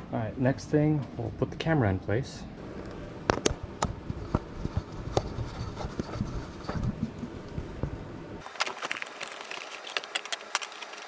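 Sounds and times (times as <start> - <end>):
plastic bag and foam crinkling: 8.4 - 11.0.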